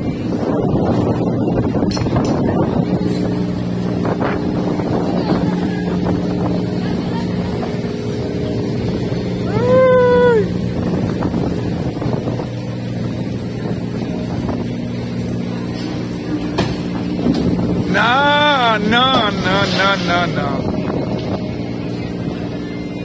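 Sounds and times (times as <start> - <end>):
ship engine droning: 0.0 - 23.0
wind on microphone: 0.0 - 23.0
loud pitched tone: 17.6 - 21.0.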